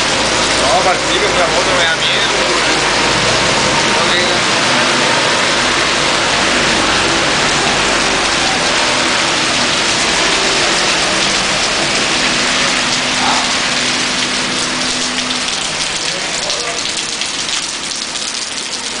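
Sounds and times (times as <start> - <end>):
heavy rain on a street: 0.0 - 19.0
drops ticking close by: 7.1 - 19.0.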